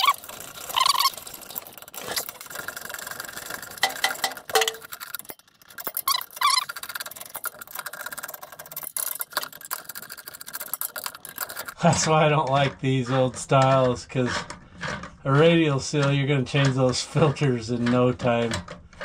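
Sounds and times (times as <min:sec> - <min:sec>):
brief squeaks: 0:05.9 - 0:06.7.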